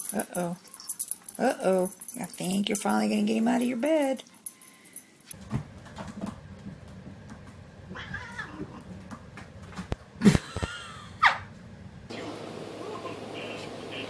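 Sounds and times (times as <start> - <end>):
cats yowling: 7.9 - 8.8.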